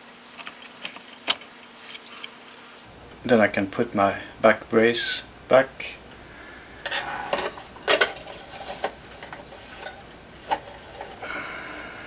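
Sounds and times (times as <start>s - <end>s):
plastic scrape: 6.8s - 11.2s.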